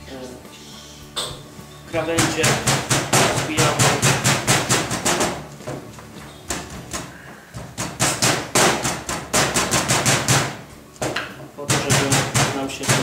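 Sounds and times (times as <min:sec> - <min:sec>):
wooden mallet pounding meat: 0:02.0 - 0:05.8, 0:06.5 - 0:13.0.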